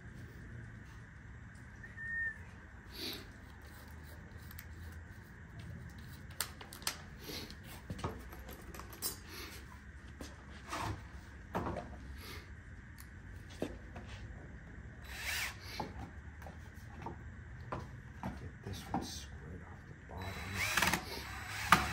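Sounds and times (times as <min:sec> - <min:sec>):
low background hum: 0:00.0 - 0:21.9
clicks and knocks of drill and wood: 0:20.4 - 0:21.9.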